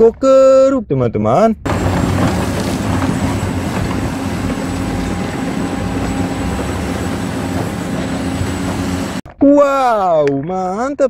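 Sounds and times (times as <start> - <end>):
excavator diesel engine running: 1.6 - 9.3.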